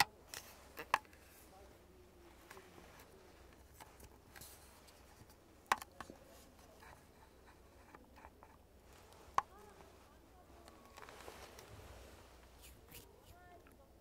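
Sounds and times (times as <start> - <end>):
plastic tool tapping and rustling: 5.2 - 6.2.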